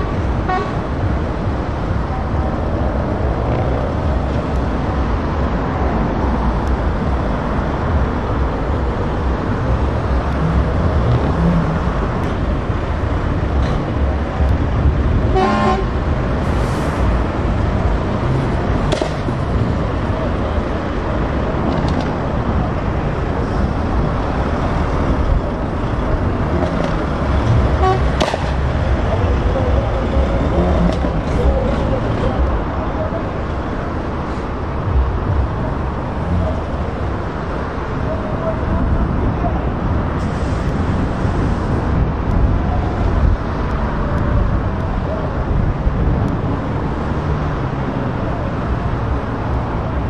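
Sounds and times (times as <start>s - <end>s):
truck horn toot: 0.0s - 0.9s, 15.3s - 16.0s, 27.7s - 28.2s
truck diesel engine passing: 0.0s - 50.0s.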